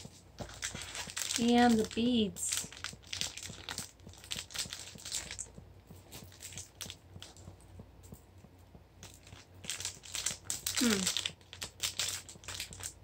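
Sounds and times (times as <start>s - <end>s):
plastic bags crinkling: 0.1s - 7.4s, 9.0s - 13.0s.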